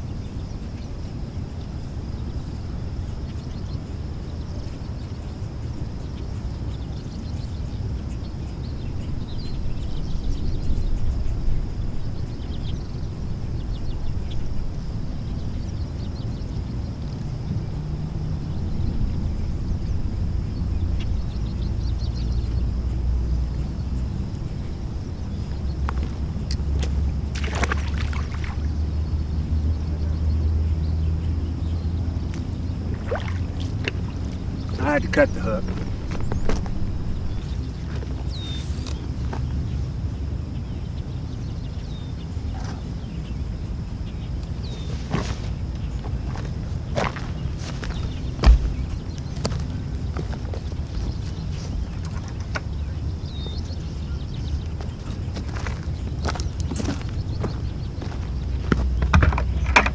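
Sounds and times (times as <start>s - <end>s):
low steady rumble: 0.0s - 59.9s
small birds chirping: 0.0s - 59.9s
boots splashing in water: 26.8s - 28.7s, 32.9s - 34.4s, 48.4s - 48.9s.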